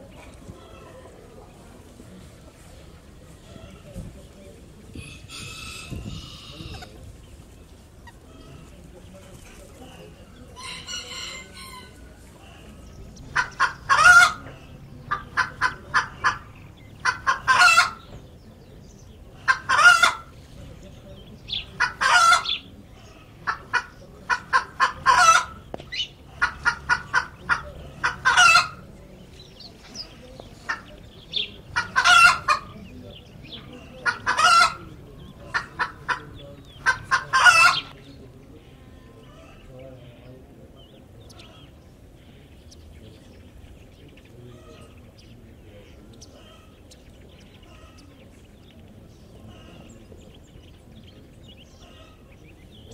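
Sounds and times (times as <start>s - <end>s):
chicken cackling: 4.8s - 7.1s, 10.0s - 18.1s, 19.3s - 20.4s, 21.3s - 38.0s.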